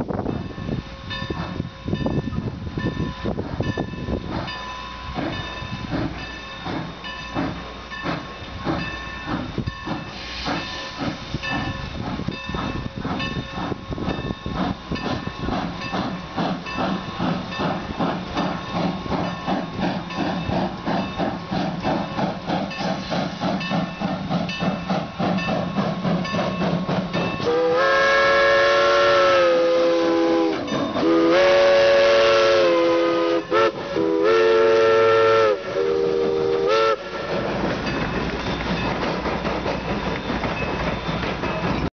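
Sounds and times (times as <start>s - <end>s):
steam locomotive chuffing: 0.0s - 41.9s
locomotive chime whistle: 25.5s - 39.1s, 39.7s - 41.9s.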